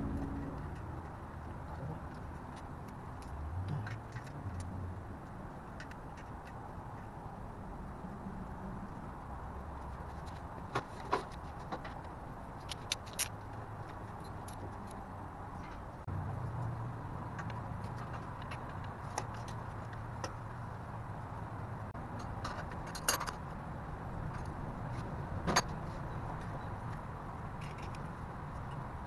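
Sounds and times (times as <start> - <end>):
hand tool clicks and clinks: 12.6 - 13.4.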